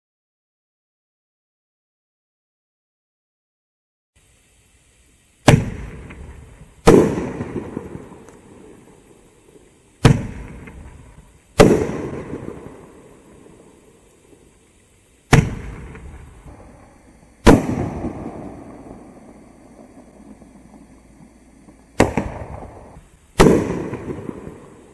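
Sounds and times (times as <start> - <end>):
fireworks launch thumps: 5.4 - 8.5, 10.0 - 12.8, 15.3 - 19.0, 19.8 - 24.8
fireworks shells bursting: 5.4 - 24.9.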